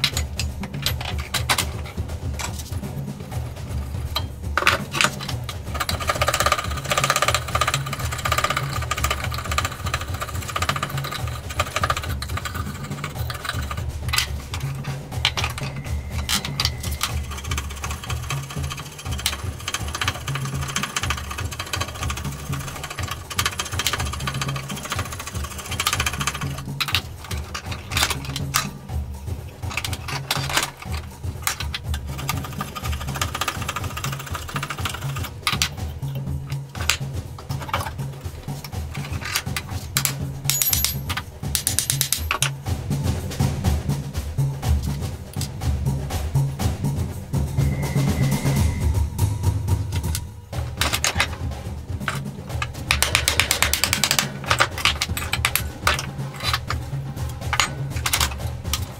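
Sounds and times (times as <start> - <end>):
background music with bass line: 0.0 - 58.9
sharp tool clicks: 38.6 - 42.6.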